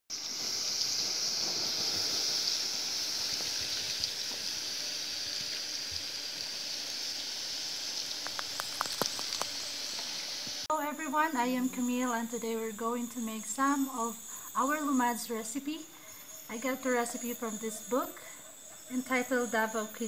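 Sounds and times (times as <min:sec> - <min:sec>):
running water: 0:00.1 - 0:10.7
high-pitched hiss: 0:00.1 - 0:20.0
sharp clicks: 0:08.2 - 0:10.1.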